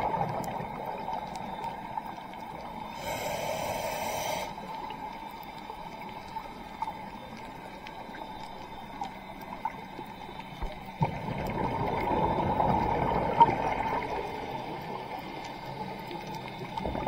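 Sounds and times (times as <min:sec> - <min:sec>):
faint clicks: 0:00.0 - 0:03.2, 0:04.5 - 0:11.5, 0:13.4 - 0:17.0
underwater hiss: 0:02.8 - 0:05.1.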